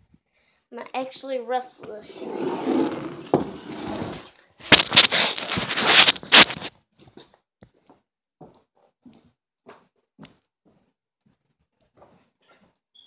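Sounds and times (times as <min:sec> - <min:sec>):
rustling against microphone: 0:01.9 - 0:06.7.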